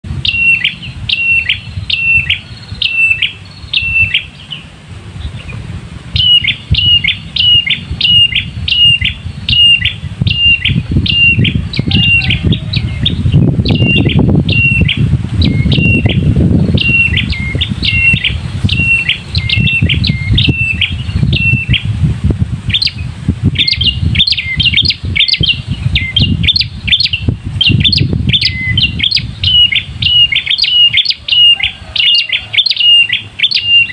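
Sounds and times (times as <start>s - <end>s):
low rumbling noise: 0.0s - 33.9s
tailorbird calling: 0.2s - 21.9s, 23.6s - 33.9s.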